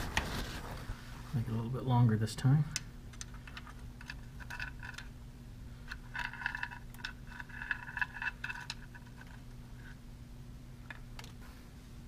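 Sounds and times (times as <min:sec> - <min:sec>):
metal scraping and clinking: 0:05.9 - 0:10.0.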